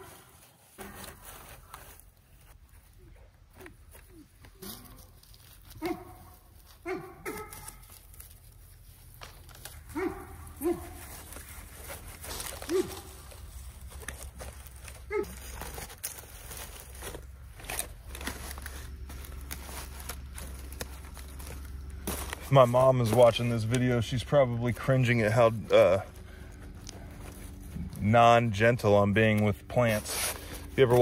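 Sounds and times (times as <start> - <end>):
dog yipping: 5.8 - 6.2, 6.8 - 7.8, 9.9 - 11.0, 12.6 - 13.1, 15.1 - 15.4.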